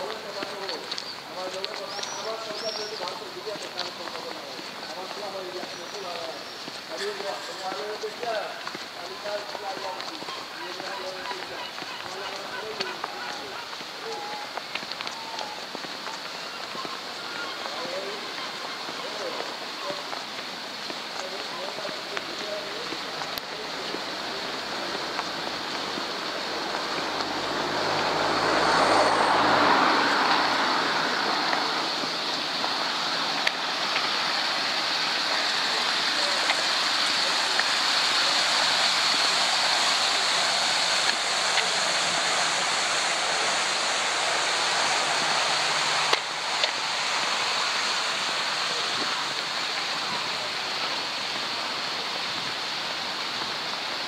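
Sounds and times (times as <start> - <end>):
vehicle passing: 23.6 - 51.4.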